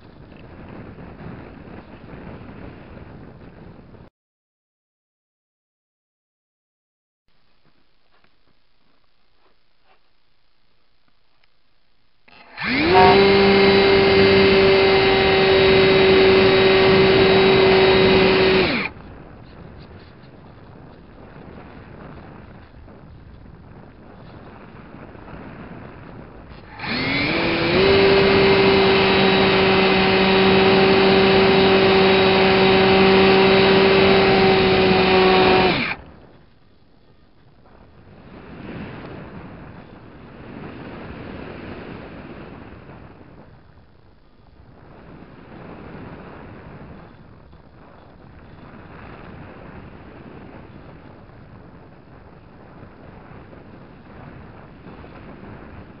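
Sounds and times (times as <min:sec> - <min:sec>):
wind roaring over microphone: 0:00.0 - 0:04.1, 0:12.3 - 0:56.0
model airplane motor and propeller: 0:12.3 - 0:40.0.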